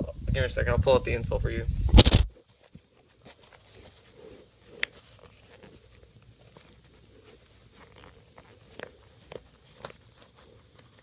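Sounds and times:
soft handling rustles: 2.3s - 11.0s.

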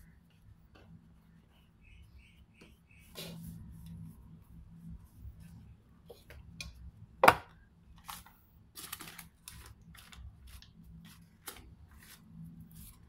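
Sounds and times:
paper wrapper crinkling: 8.0s - 12.2s.

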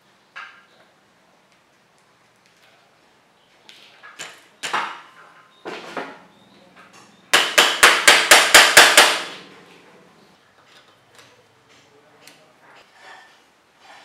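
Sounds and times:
hammer tapping a plug: 7.4s - 9.3s
knocks and scrapes: 12.7s - 14.0s.

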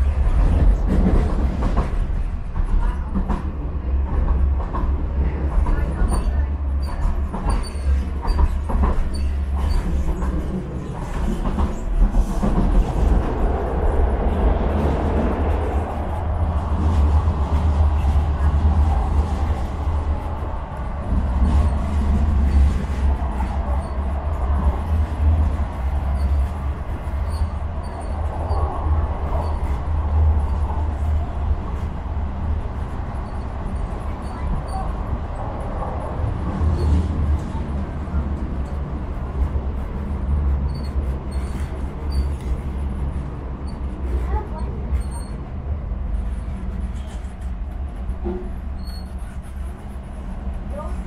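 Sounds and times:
tram wheels rumbling on rail: 0.0s - 51.0s
faint high squeaks: 33.2s - 34.9s, 44.5s - 45.4s, 48.7s - 49.4s.

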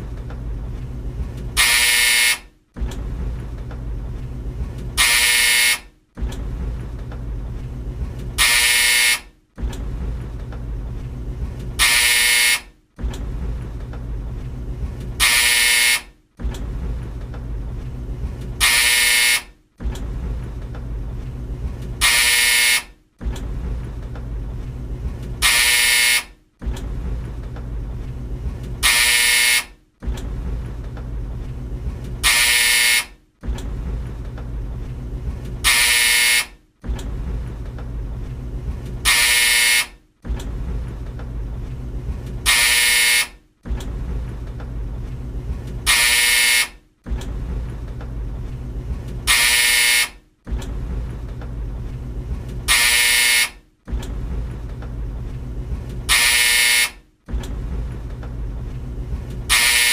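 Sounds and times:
tumble dryer humming: 0.0s - 53.2s, 53.8s - 59.8s
harsh dryer buzzer: 1.6s - 2.5s, 5.0s - 5.9s, 8.4s - 9.3s, 11.8s - 12.7s, 15.2s - 16.2s, 18.6s - 19.6s, 22.0s - 23.0s, 25.4s - 26.4s, 28.8s - 29.8s, 32.2s - 33.2s, 35.6s - 36.6s, 39.0s - 40.0s, 42.4s - 43.4s, 45.9s - 46.8s, 49.2s - 50.2s, 52.7s - 53.6s, 56.1s - 57.0s, 59.5s - 59.9s.

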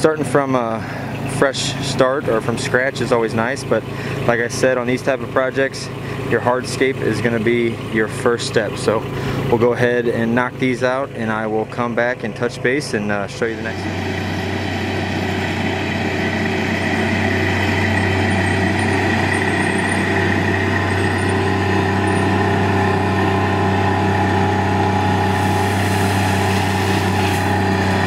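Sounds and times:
mini loader engine running: 0.0s - 28.0s
steady tone: 14.0s - 28.0s.

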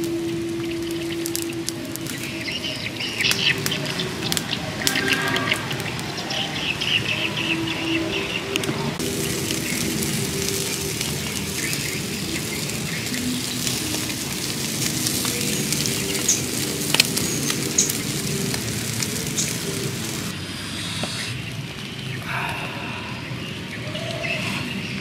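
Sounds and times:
meat sizzling on a grill: 0.0s - 7.5s, 9.0s - 20.3s
embers crackling: 0.0s - 25.0s.

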